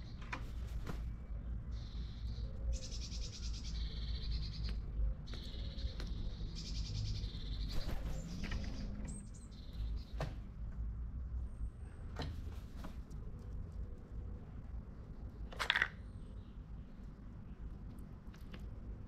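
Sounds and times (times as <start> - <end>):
birds chirping: 0.0 - 10.7.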